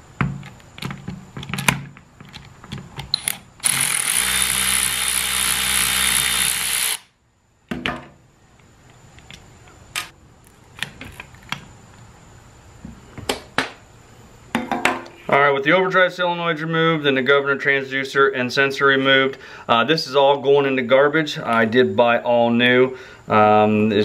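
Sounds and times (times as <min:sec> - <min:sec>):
power driver running: 0:03.1 - 0:07.1.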